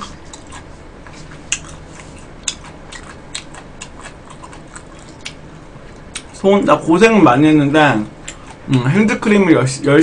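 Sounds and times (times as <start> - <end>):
wet chewing clicks and smacks: 0.0 - 6.4, 8.2 - 8.7.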